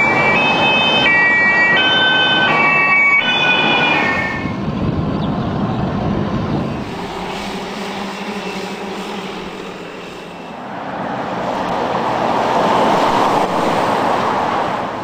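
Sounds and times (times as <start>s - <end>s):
synthesized electronic melody: 0.0s - 4.6s
truck driving by: 0.0s - 15.0s.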